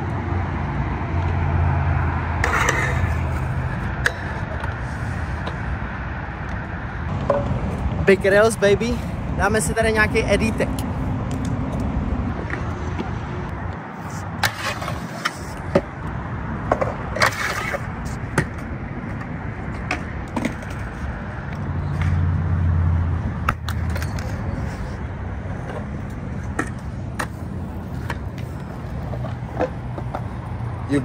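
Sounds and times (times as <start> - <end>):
traffic hum: 0.0 - 31.0
wheels rolling on concrete: 0.0 - 31.0.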